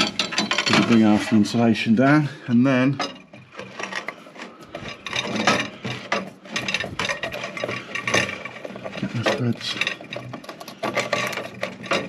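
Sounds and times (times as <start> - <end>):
threads clicking and grating: 0.0 - 12.0.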